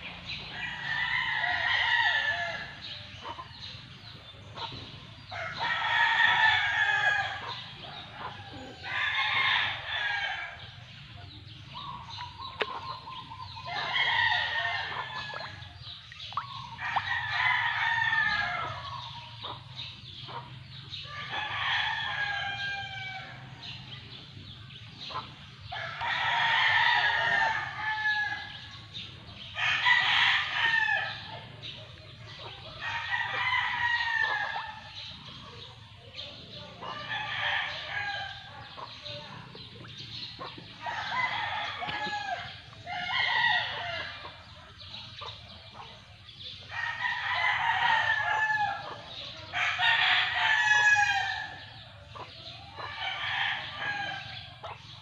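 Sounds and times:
roosters crowing: 0.0s - 3.7s, 5.2s - 10.9s, 12.9s - 19.5s, 25.0s - 31.5s, 32.7s - 35.3s, 36.4s - 44.6s, 46.6s - 55.0s.

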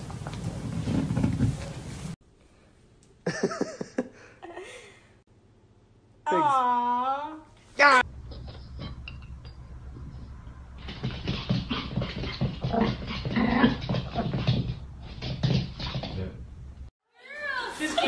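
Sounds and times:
dog growling and whining: 12.6s - 14.4s.

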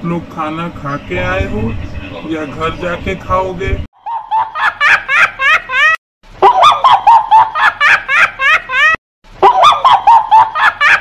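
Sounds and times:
cartoonish laugh sound effect: 4.0s - 11.0s.

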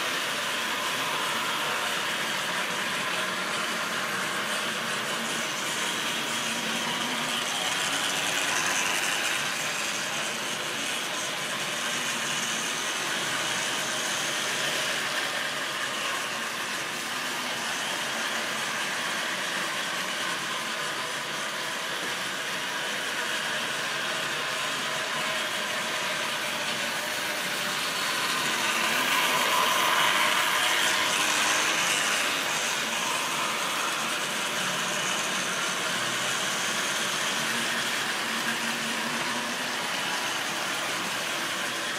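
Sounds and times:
model train motor whirring: 0.0s - 41.9s.

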